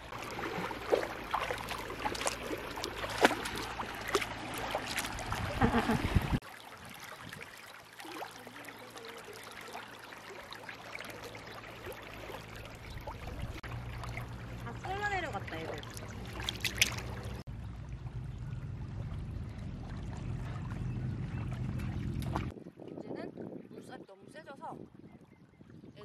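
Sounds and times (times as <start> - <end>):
splashes and knocks in water: 0.0 - 17.5, 19.0 - 22.6
stream flowing over stones: 0.0 - 17.5.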